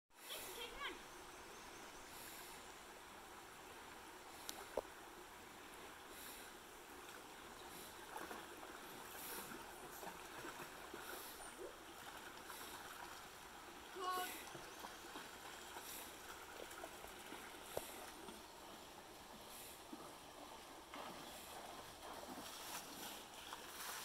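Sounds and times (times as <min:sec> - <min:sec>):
stream rushing: 0:00.2 - 0:24.0
splashing in water: 0:07.1 - 0:24.0.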